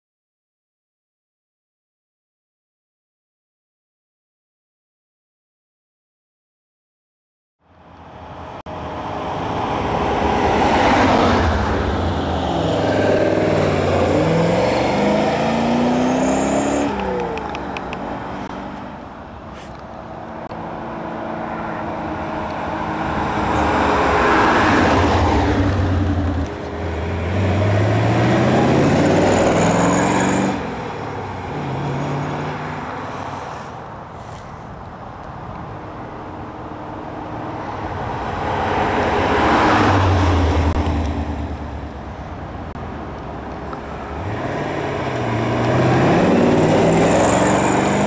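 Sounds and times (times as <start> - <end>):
car engine accelerating past: 9.6 - 17.6, 22.8 - 30.6.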